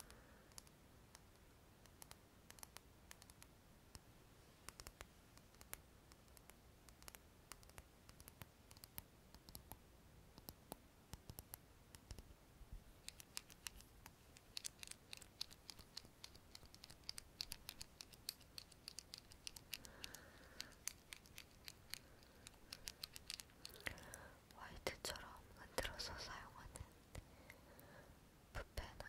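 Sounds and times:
soft hiss: 0.0s - 29.0s
small objects clicking: 13.0s - 24.2s.

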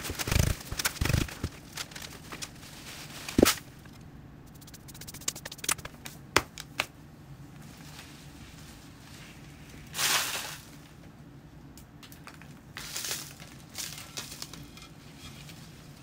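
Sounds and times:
potting soil rustling and crumbling: 0.0s - 6.0s, 12.3s - 16.0s.

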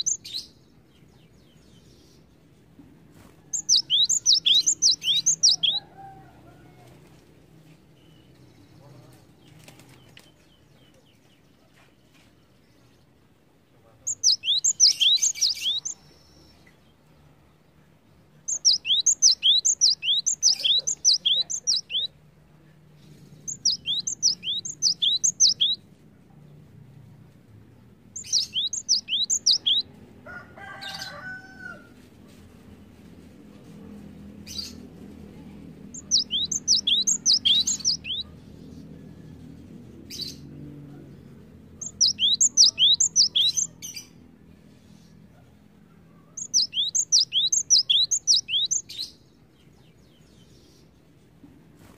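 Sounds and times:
low bird call: 3.5s - 6.3s, 18.5s - 22.1s
bird singing high notes: 3.6s - 5.8s.

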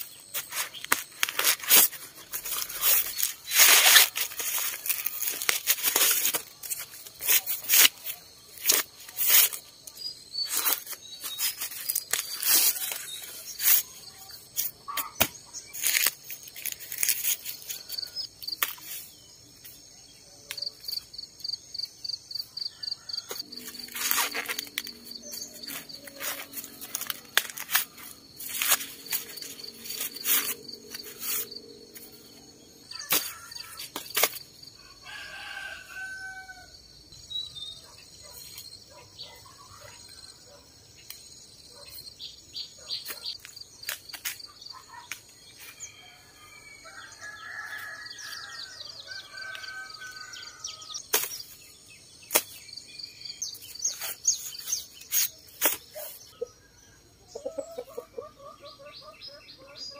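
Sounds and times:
corn husks crackling and rustling: 0.0s - 19.8s, 23.2s - 35.2s, 43.0s - 46.0s, 47.8s - 52.8s, 53.4s - 56.4s
insect trilling: 20.5s - 36.7s
rooster crowing: 34.8s - 36.8s, 45.8s - 51.0s.

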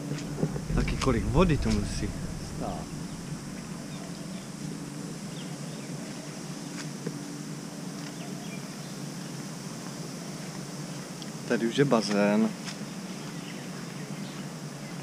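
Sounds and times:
low hum: 0.0s - 5.8s.

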